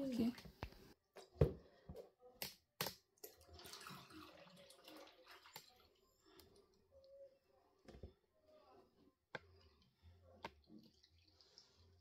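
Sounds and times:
thick slurry sloshing and pouring: 3.4 - 6.0.

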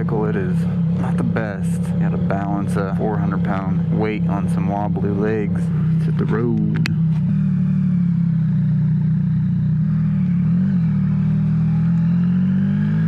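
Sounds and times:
motorcycle engine running: 0.0 - 13.0.

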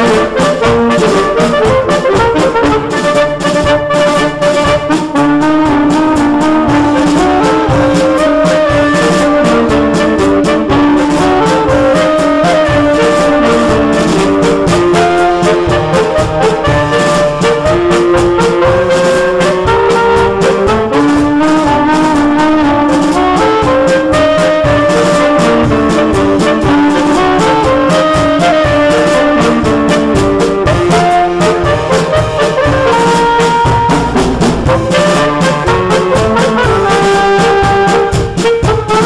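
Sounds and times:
percussion steady beat: 0.0 - 39.0
saxophone quartet playing: 0.0 - 39.0.

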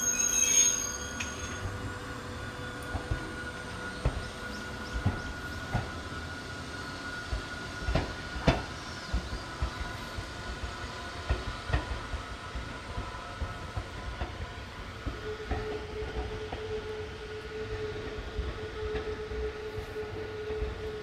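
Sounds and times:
train wheels clacking over rail joints: 2.8 - 6.0, 7.3 - 16.8.

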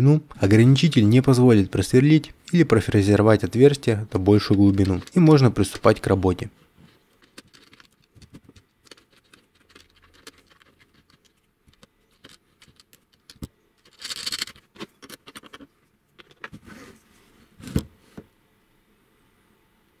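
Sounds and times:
small plastic clicks and scratches: 6.9 - 16.6.

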